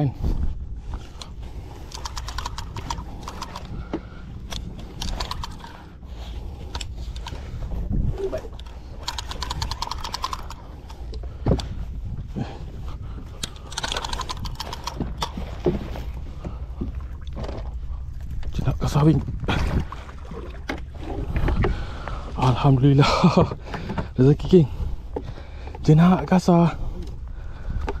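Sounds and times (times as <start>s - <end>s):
fishing reel clicking: 1.2s - 3.8s, 4.5s - 5.9s, 8.5s - 11.1s, 13.4s - 15.4s.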